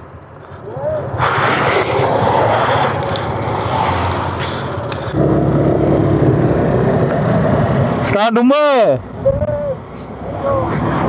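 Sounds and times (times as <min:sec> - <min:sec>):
scooter engine: 0:00.0 - 0:08.0.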